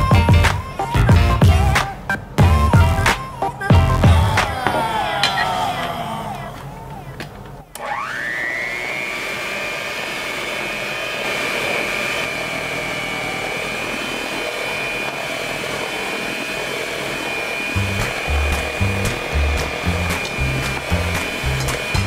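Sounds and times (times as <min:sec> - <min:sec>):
background music: 0:00.0 - 0:04.7
electric hand mixer whining: 0:00.0 - 0:22.0.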